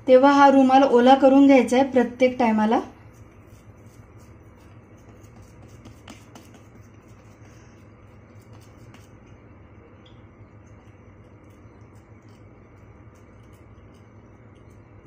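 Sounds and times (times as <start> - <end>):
low steady hum: 0.0 - 15.0
fingers patting dough: 3.1 - 9.4.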